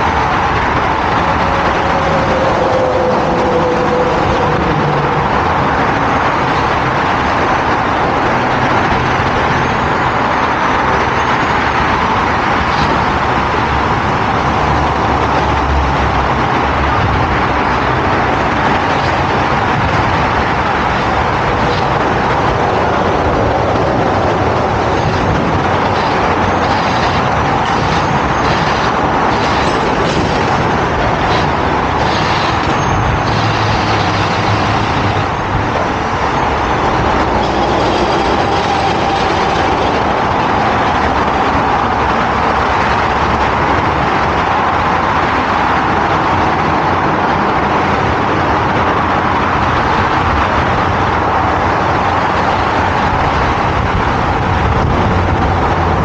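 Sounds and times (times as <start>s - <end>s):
heavy road vehicles rushing: 0.0s - 56.0s.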